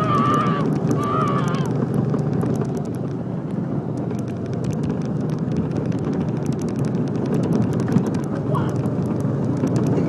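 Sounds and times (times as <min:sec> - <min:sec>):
go-kart engine running: 0:00.0 - 0:10.0.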